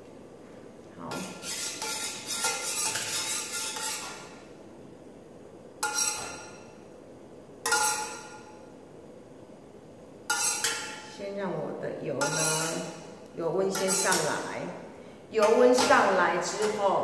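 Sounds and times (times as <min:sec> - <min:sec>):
metal ladle scraping a wok: 0:01.1 - 0:04.4, 0:05.8 - 0:06.6, 0:07.7 - 0:08.4, 0:10.3 - 0:11.1, 0:12.2 - 0:14.4.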